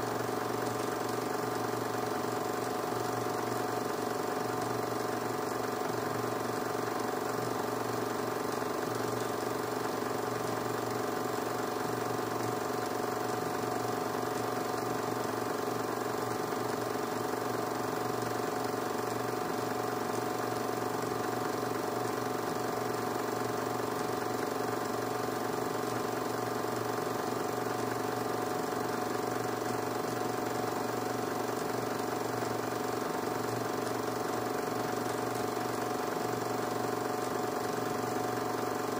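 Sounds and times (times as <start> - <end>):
film projector running: 0.0 - 38.9.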